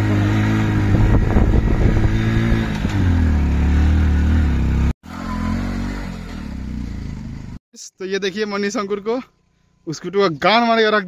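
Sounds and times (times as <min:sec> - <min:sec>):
motorcycle engine running: 0:00.0 - 0:07.6
quieter motorcycle engine: 0:00.0 - 0:07.6.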